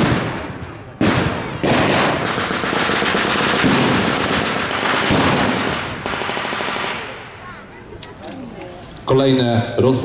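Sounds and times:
machine-gun and rifle fire: 0.0 - 7.2.

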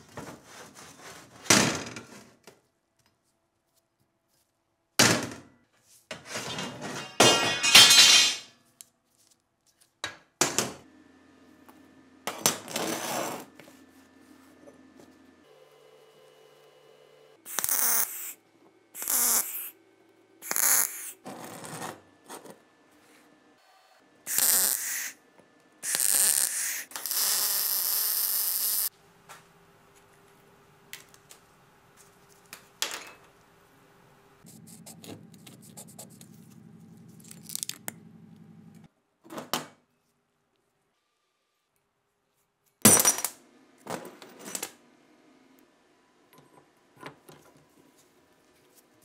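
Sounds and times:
electric arc welding bursts: 17.5 - 18.4, 19.0 - 19.8, 20.4 - 21.2, 24.3 - 25.2, 25.8 - 28.9
low steady hum: 33.2 - 38.9.

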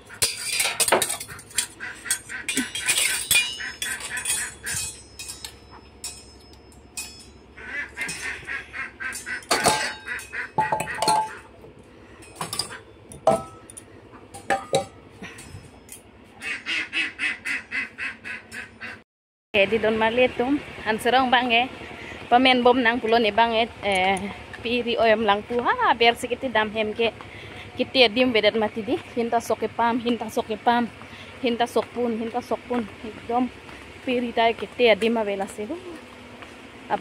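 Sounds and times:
metal kitchenware clinking: 0.0 - 11.6, 12.2 - 16.0
rapid animal calls: 1.2 - 4.8, 7.6 - 11.6.

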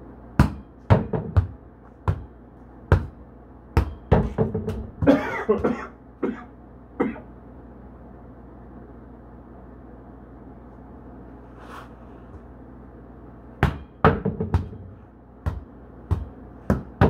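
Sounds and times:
steady low hum: 0.0 - 17.0
volleyball thudding: 0.4 - 2.3, 2.9 - 3.2, 3.8 - 5.7, 13.6 - 17.0.

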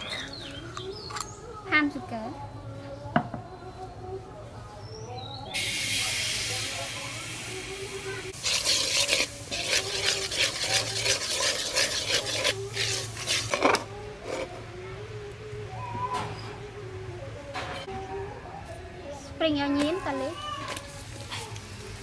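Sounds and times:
liquid sizzling in hot wok: 5.6 - 13.8
metal ladle scraping wok: 8.3 - 14.6.

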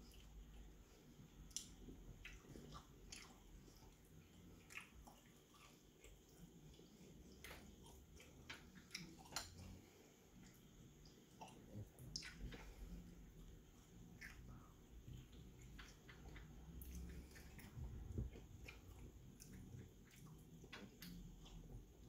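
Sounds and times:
wet clicks and smacks: 1.4 - 3.4, 7.4 - 9.7, 15.2 - 21.6
person chewing and lip-smacking: 1.4 - 9.8.

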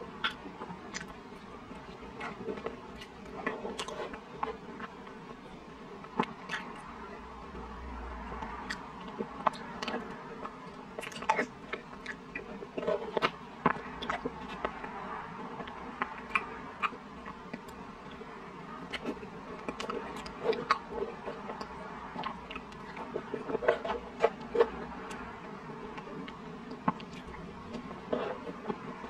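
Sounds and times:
wet mouth eating sounds: 0.2 - 5.2, 6.0 - 7.0, 8.4 - 15.0, 15.6 - 25.3.

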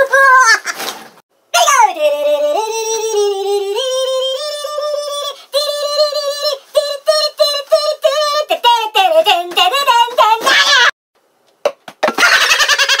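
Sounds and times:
high-pitched singing voice: 0.0 - 0.7, 1.5 - 10.9.

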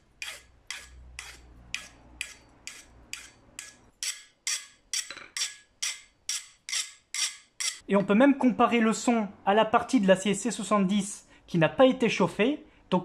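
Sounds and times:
file rasping on steel: 0.0 - 7.8.

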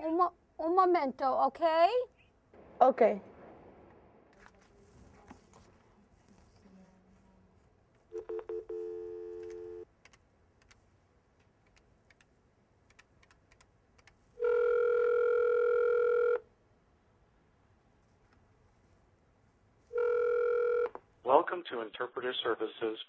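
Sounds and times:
telephone dial tone: 8.1 - 9.9, 14.4 - 16.4, 20.0 - 21.0
telephone ringback tone: 8.1 - 9.9, 14.4 - 16.4, 20.0 - 21.0.

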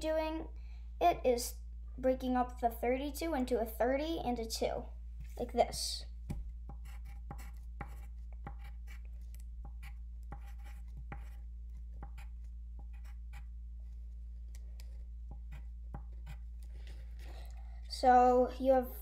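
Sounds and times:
steady low hum: 0.0 - 19.0
pencil writing on paper: 6.7 - 16.8.

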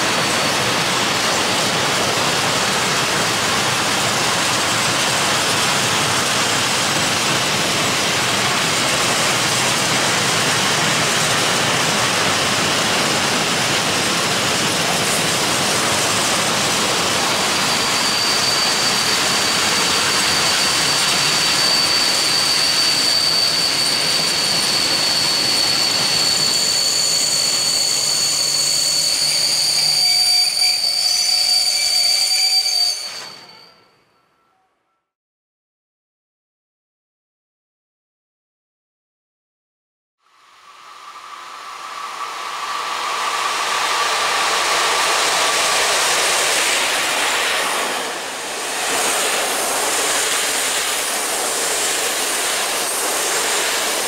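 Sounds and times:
train wheels rolling on rails: 0.0 - 33.7, 40.8 - 54.0
high brake squeal: 16.0 - 35.0.

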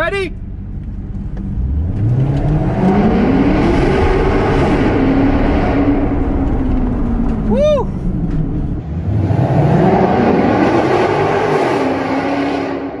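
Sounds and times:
car engine accelerating hard: 0.4 - 13.0.

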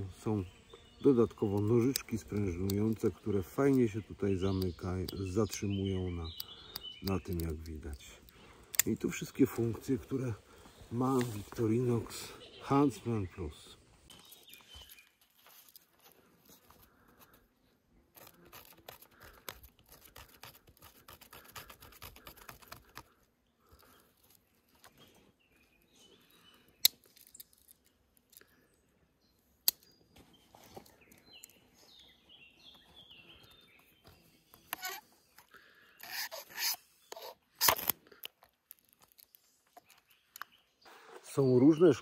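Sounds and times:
sharp clicks: 6.3 - 9.2
knife scraping bark: 18.1 - 23.2, 34.7 - 35.1, 35.9 - 38.0.

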